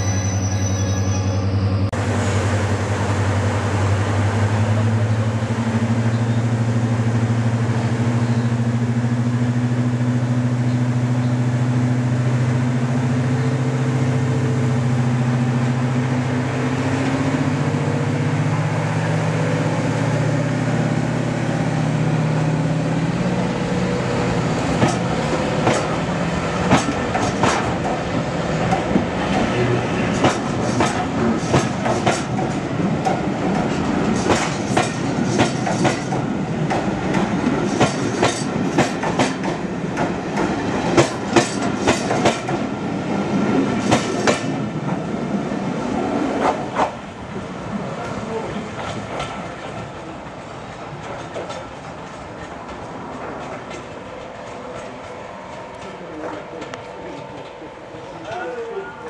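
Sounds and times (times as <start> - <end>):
diesel locomotive engines humming: 0.0 - 59.0
train wheels and couplings clanking: 23.9 - 45.1, 45.8 - 47.4, 48.0 - 59.0.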